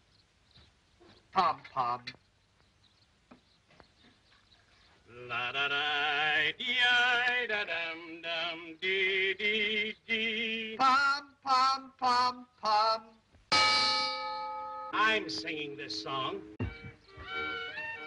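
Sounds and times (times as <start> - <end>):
man singing with vibrato: 5.1 - 13.2.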